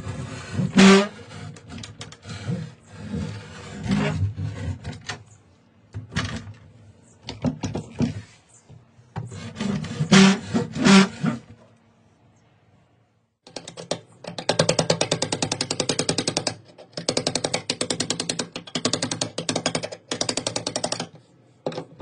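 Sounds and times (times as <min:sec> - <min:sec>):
wooden door scraping floor tiles: 0:00.0 - 0:05.4, 0:06.0 - 0:08.5, 0:09.2 - 0:11.6.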